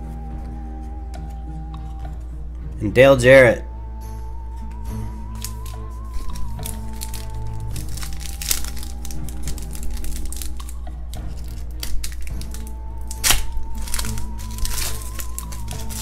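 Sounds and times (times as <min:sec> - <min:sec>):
music with long held notes: 0:00.0 - 0:16.0
foil pack crinkling and tearing: 0:05.4 - 0:16.0.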